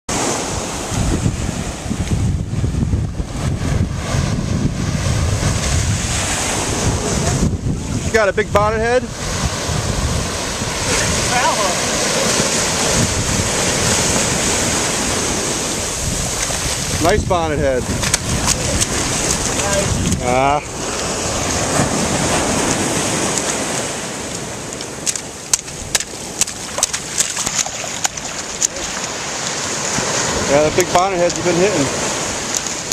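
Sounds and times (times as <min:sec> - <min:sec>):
small waves washing on beach: 0:00.1 - 0:32.9
surf at water's edge: 0:00.1 - 0:32.9
wind rumbling on microphone: 0:00.1 - 0:32.9
sharp irregular clicks and snaps: 0:24.3 - 0:29.5, 0:32.5 - 0:32.9.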